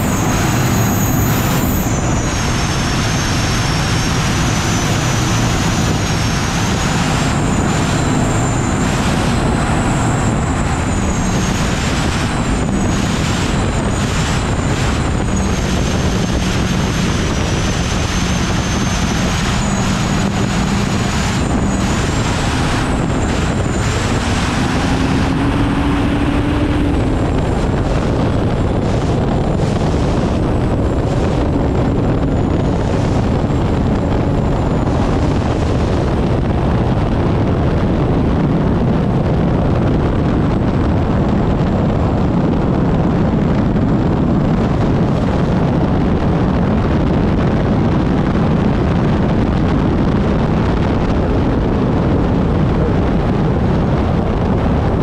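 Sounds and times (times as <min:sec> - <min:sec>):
thin high whine: 0:00.0 - 0:28.0
turbine engine roaring: 0:00.0 - 0:55.0
wind rushing on microphone: 0:00.0 - 0:55.0.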